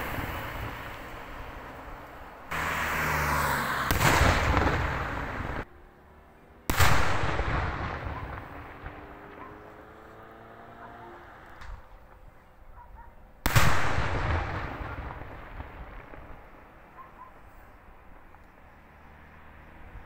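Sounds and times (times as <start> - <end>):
rolling echo: 3.8 - 5.6, 6.7 - 10.8, 13.5 - 18.4.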